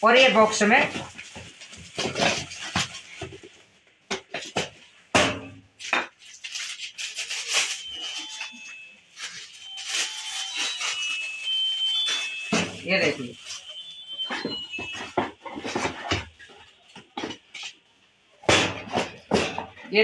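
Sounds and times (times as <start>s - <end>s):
plastic bag rustling and crinkling: 0.0s - 4.7s, 5.8s - 19.8s.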